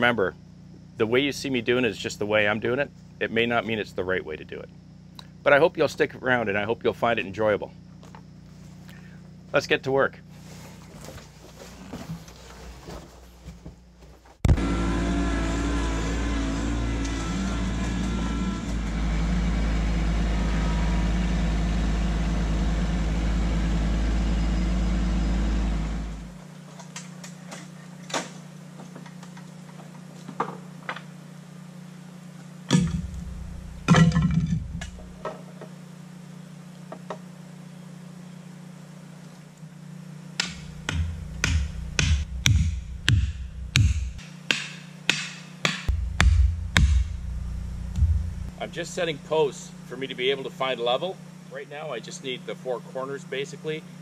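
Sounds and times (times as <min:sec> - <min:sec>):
tractor diesel engine running: 0:14.5 - 0:26.4, 0:32.7 - 0:35.2, 0:40.4 - 0:44.2, 0:45.9 - 0:50.9
knocks and thuds: 0:32.7 - 0:35.2, 0:40.4 - 0:44.2, 0:45.2 - 0:48.6.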